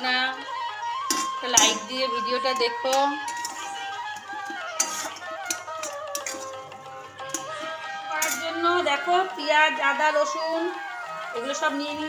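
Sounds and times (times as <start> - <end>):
background music: 0.0 - 12.0
spatula clicking in frying pan: 4.2 - 6.5.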